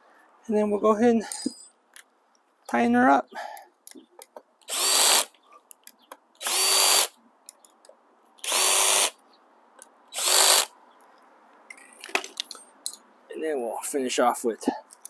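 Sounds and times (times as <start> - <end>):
cordless drill motor whining: 4.7 - 5.3, 6.4 - 7.1, 8.4 - 9.1, 10.2 - 10.7.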